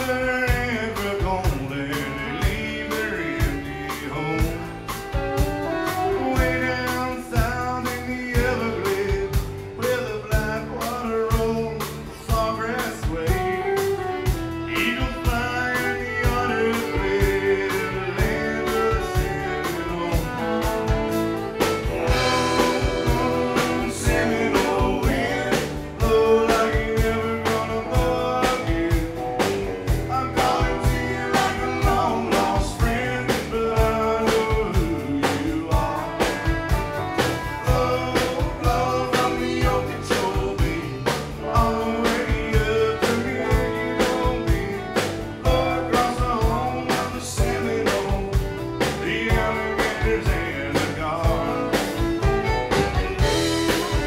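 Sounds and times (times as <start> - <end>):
country-rock band playing: 0.0 - 54.0
person singing: 0.0 - 54.0.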